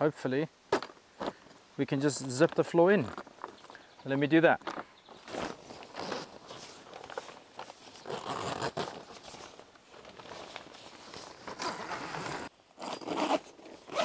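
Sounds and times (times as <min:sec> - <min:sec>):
heavy zip being pulled: 0:08.0 - 0:09.0, 0:11.4 - 0:14.0.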